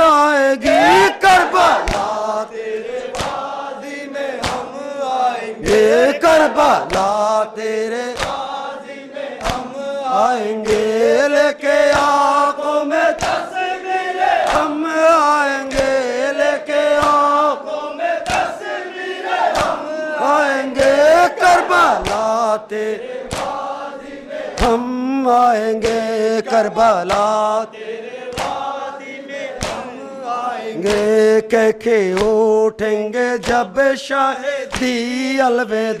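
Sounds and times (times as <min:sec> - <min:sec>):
men chanting in unison: 0:00.0 - 0:36.0
hands slapping chests: 0:00.6 - 0:02.3, 0:02.9 - 0:03.6, 0:04.4 - 0:04.8, 0:05.6 - 0:07.2, 0:08.1 - 0:08.5, 0:09.4 - 0:09.7, 0:10.6 - 0:11.0, 0:11.8 - 0:12.2, 0:13.1 - 0:13.5, 0:14.3 - 0:14.8, 0:15.7 - 0:16.0, 0:16.8 - 0:17.4, 0:18.2 - 0:18.8, 0:19.4 - 0:19.9, 0:20.8 - 0:22.4, 0:23.2 - 0:23.7, 0:24.5 - 0:24.8, 0:25.8 - 0:27.4, 0:28.3 - 0:28.8, 0:29.5 - 0:29.9, 0:30.8 - 0:31.2, 0:32.1 - 0:32.4, 0:33.4 - 0:33.7, 0:34.7 - 0:35.0.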